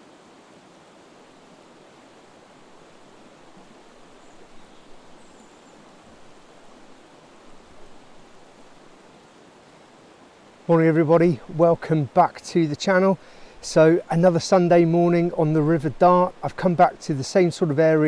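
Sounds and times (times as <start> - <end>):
river flowing: 0.0 - 18.0
faint high bird chirps: 4.1 - 5.9.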